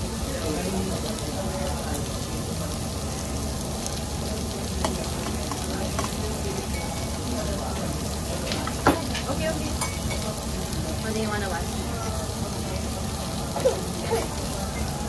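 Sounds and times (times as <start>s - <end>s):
meat sizzling on grill pan: 0.0s - 15.0s
chopsticks clinking on metal dishes: 4.8s - 7.2s, 8.5s - 10.3s.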